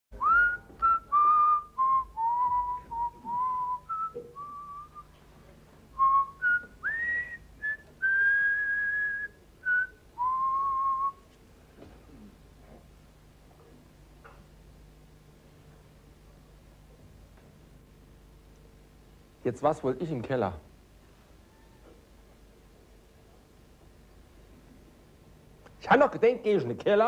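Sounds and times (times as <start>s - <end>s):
man whistling a tune: 0.2s - 5.1s, 6.0s - 11.2s.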